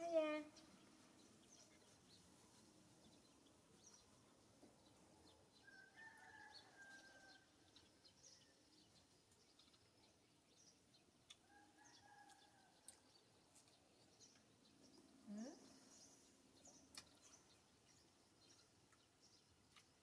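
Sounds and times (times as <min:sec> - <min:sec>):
small birds chirping: 0:00.0 - 0:20.0
distant rooster crowing: 0:05.6 - 0:07.5, 0:11.4 - 0:12.9.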